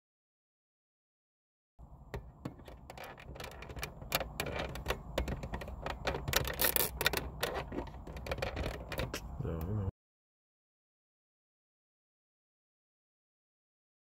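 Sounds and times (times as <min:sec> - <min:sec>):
metal tapping on plastic: 0:02.1 - 0:09.2.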